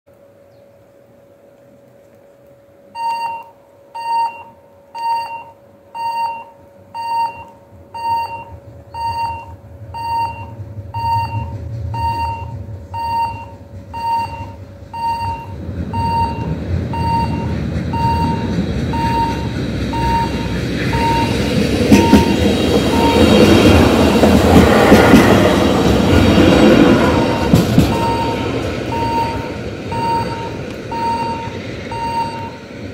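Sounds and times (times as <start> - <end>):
railcar passing rumble: 7.6 - 32.9
level crossing bell ringing: 27.3 - 32.6.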